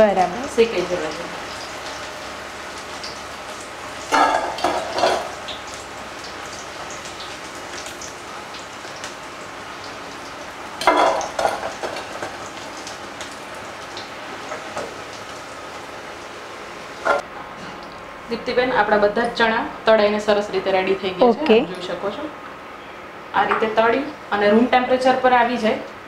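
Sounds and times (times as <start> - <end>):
chickpeas sizzling in hot oil: 0.0 - 17.3.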